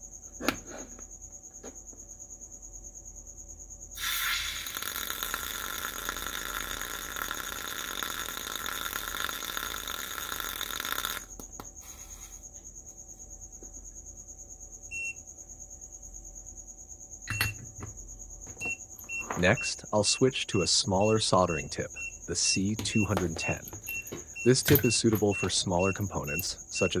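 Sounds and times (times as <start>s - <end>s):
hot soldering tip sizzling in water: 4.0s - 11.3s
short beep: 17.3s - 17.6s, 20.5s - 22.2s, 23.9s - 27.0s.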